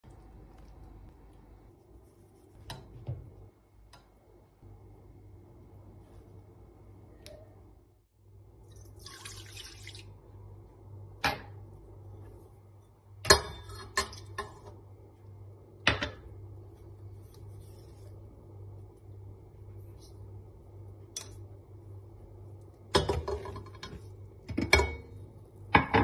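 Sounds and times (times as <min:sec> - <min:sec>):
milk pouring into steel bowl: 0:08.6 - 0:10.2.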